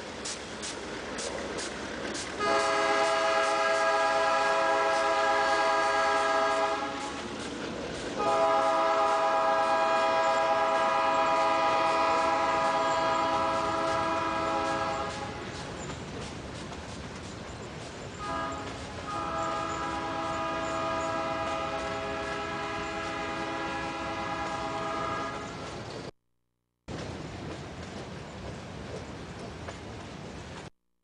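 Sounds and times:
freight train rumble: 0.0 - 26.1, 26.9 - 30.7
locomotive air horn blasts: 2.4 - 7.2, 8.2 - 15.5, 18.2 - 25.6.

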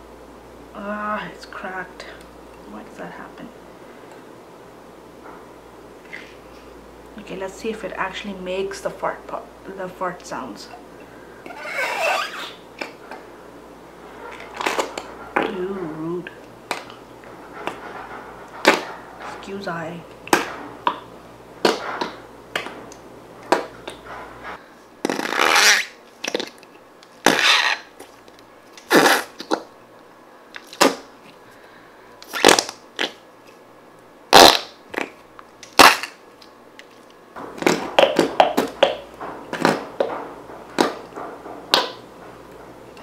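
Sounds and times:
squelchy slime fart noises: 11.5 - 12.6, 25.0 - 26.5, 27.2 - 27.9, 28.9 - 29.6, 34.3 - 35.2.

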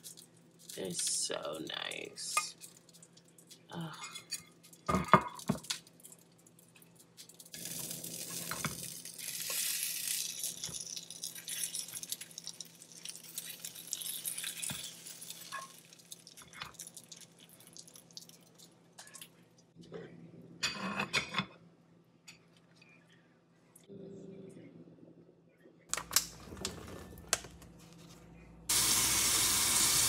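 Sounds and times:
sizzling hiss: 28.7 - 30.0.

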